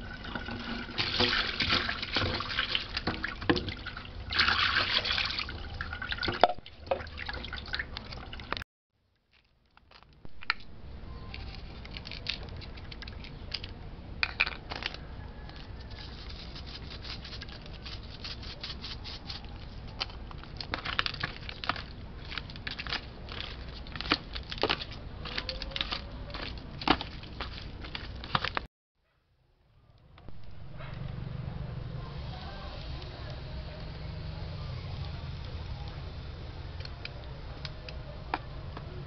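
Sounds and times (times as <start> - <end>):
plastic tray crinkling: 20.0 - 28.7.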